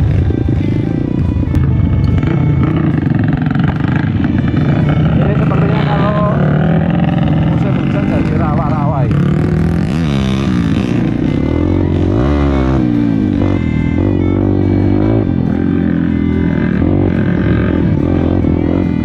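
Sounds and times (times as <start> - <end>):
background music: 0.0 - 19.0
motorcycle engine revving: 0.0 - 19.0.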